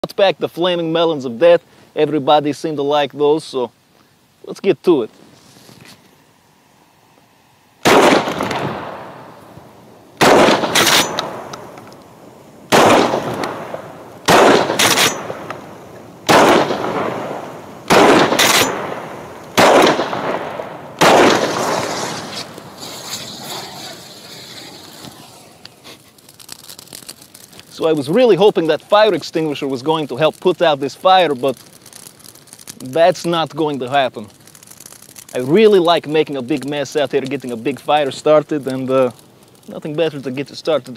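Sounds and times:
shotgun blasts: 7.8 - 9.3, 10.2 - 11.8, 12.7 - 24.0.

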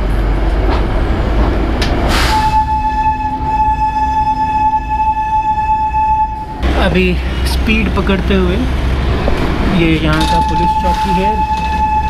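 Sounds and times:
train rumble and rail noise: 0.0 - 12.0
locomotive horn: 2.1 - 7.6, 9.9 - 12.0.

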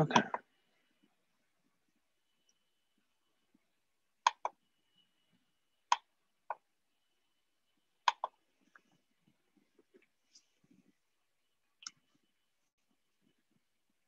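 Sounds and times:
faint high steady tone: 0.0 - 8.9
sharp clicks: 4.3 - 4.6.

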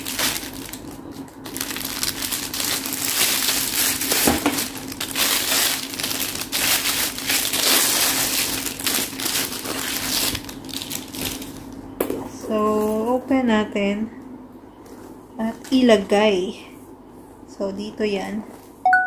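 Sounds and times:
plastic wrapping crinkling: 0.0 - 11.8.

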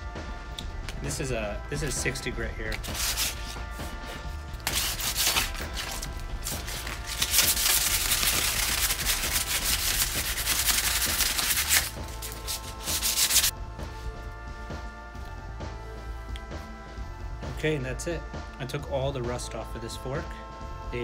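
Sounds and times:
sandpaper rasping on metal: 2.7 - 13.5.

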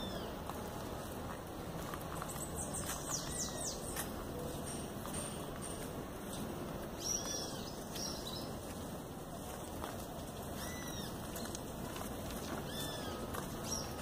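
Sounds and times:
steady background hiss: 0.0 - 14.0
bird chirps: 2.1 - 5.8, 7.0 - 8.6, 12.4 - 14.0.

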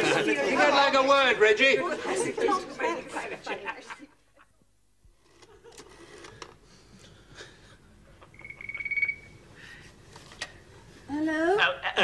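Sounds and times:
telephone ringing: 8.3 - 9.4.

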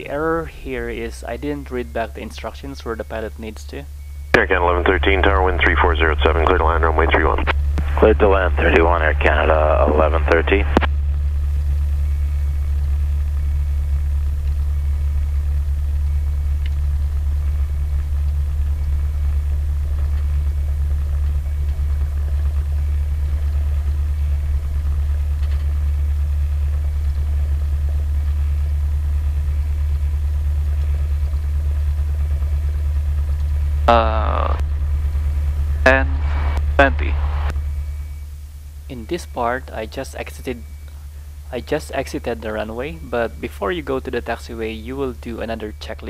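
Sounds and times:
propeller aircraft engine drone: 0.0 - 46.0.

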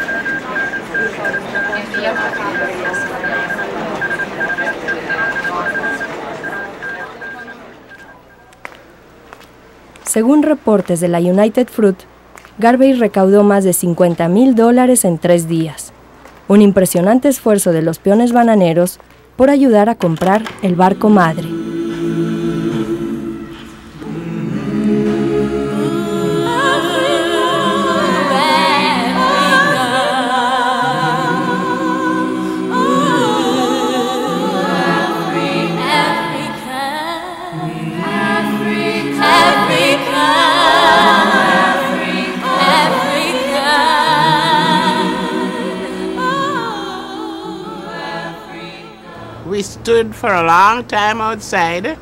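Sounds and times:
choir singing: 20.6 - 49.8.

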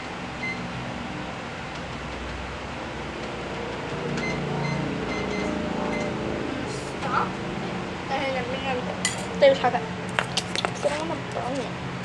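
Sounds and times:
microwave oven humming: 0.0 - 12.0
high electronic beeps: 4.2 - 6.2.

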